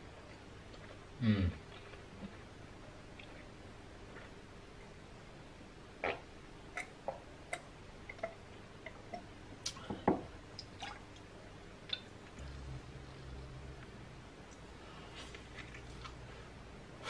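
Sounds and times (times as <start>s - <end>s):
gulps and mouth clicks: 6.0s - 9.8s
glass knocking on wooden table: 10.1s - 10.3s.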